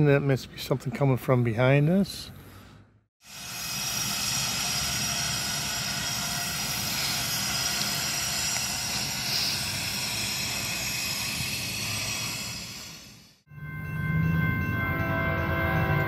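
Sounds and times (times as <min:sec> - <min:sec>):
engine drone: 0:03.2 - 0:16.0
high steady whining tones: 0:03.2 - 0:16.0.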